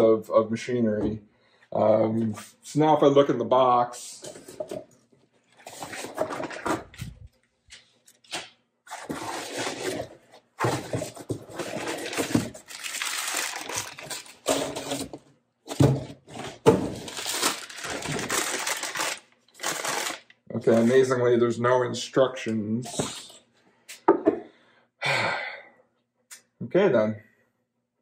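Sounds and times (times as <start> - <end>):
packing paper rustling: 8.1 - 15.2, 15.8 - 21.1.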